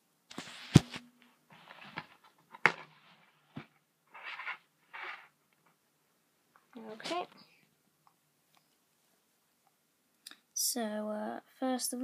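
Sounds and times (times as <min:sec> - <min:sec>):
rustling scrapes: 0:00.3 - 0:05.4.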